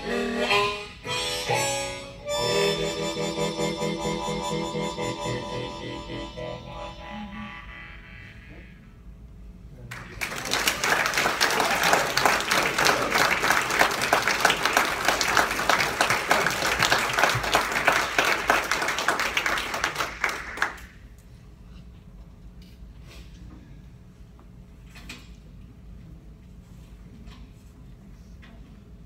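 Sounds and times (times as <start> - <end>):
audience applauding: 9.9 - 21.0.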